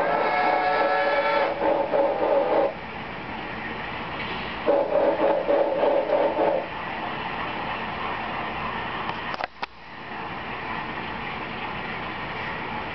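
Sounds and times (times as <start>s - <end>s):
steam engine hissing: 0.0s - 2.8s, 4.2s - 8.0s
steam locomotive whistle: 0.0s - 2.8s, 4.6s - 6.6s.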